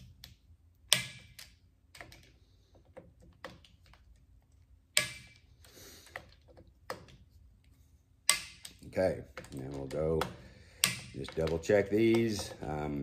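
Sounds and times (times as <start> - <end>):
tool tapping on screws: 8.2 - 12.8.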